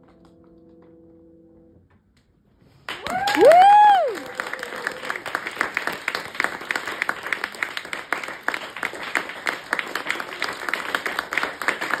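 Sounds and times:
audience applauding: 2.9 - 12.0.

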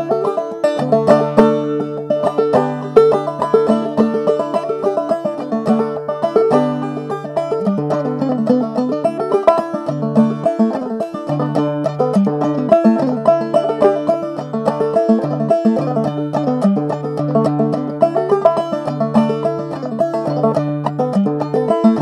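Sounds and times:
banjo playing a fast reel: 0.0 - 22.0.

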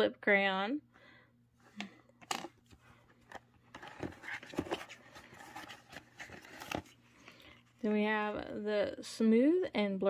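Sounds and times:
packaging rustling: 2.3 - 7.6.

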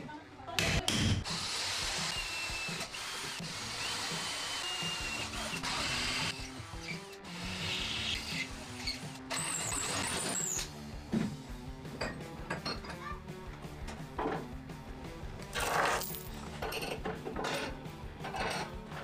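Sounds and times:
cordless drill boring through metal: 1.2 - 10.7.

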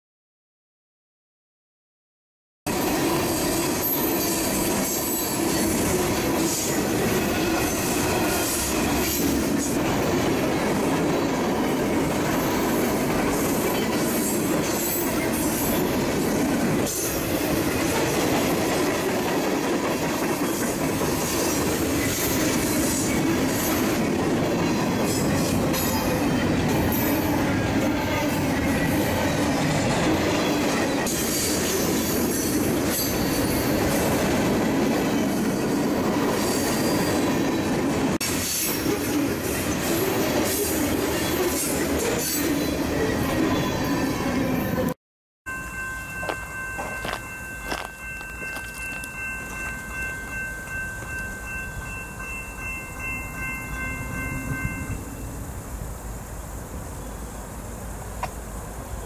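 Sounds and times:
freight train wheels rumbling: 2.7 - 45.0, 45.8 - 59.0.

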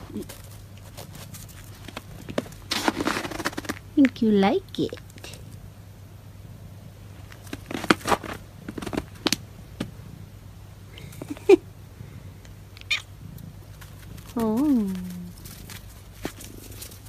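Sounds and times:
animals scuffling on snow: 0.0 - 3.8, 13.8 - 17.0.

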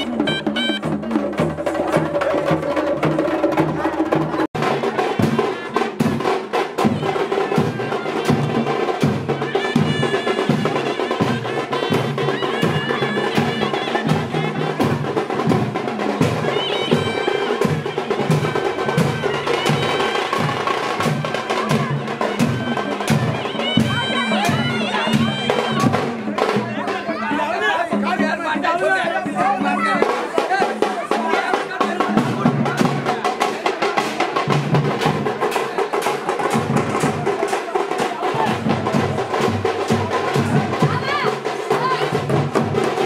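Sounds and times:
high wind instrument melody: 0.0 - 2.8, 4.6 - 31.3
drums beating fast rhythm: 0.0 - 43.0.

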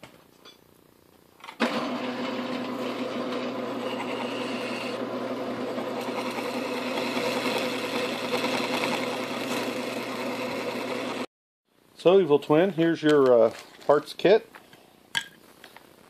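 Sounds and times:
metal lathe running: 1.6 - 11.3.

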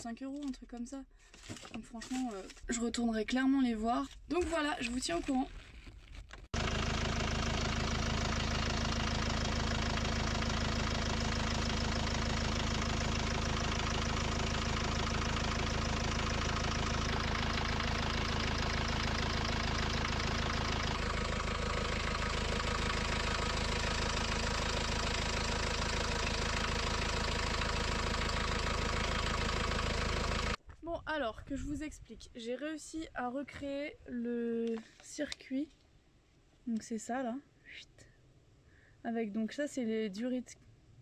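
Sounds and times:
diesel engine idling: 6.6 - 30.6.

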